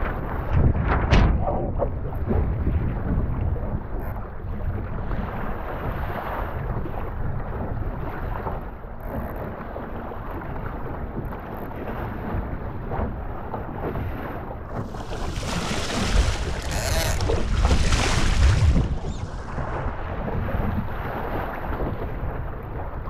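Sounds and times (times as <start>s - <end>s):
wind buffeting microphone: 0.0s - 8.4s, 12.2s - 23.0s
water rushing: 14.7s - 20.2s.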